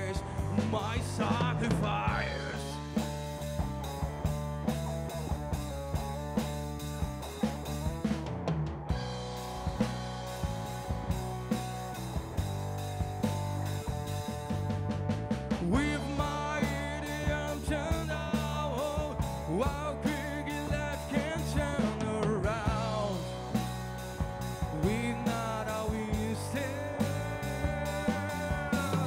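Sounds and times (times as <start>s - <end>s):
male singer: 0.0s - 3.2s, 15.6s - 23.8s, 24.5s - 29.0s
rock band playing live: 0.0s - 29.0s
steady drum beat: 0.0s - 29.0s.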